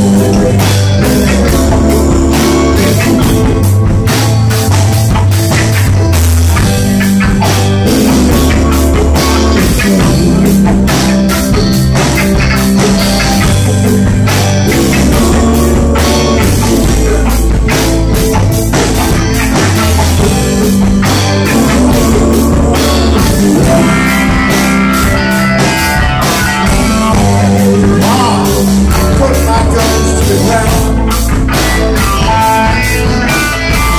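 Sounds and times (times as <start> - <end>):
bass line: 0.0 - 33.9
rock band playing: 0.0 - 33.9.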